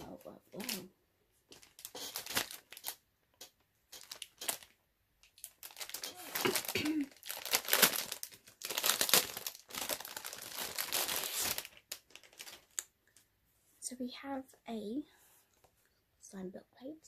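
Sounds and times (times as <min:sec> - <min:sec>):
paper wrapping crinkling and tearing: 0:00.0 - 0:00.9, 0:01.5 - 0:12.9.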